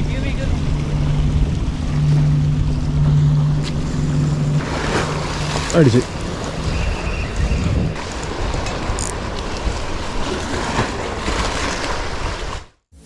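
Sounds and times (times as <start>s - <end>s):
wind buffeting microphone: 0.0s - 11.0s
waves washing against rocks: 3.8s - 12.8s.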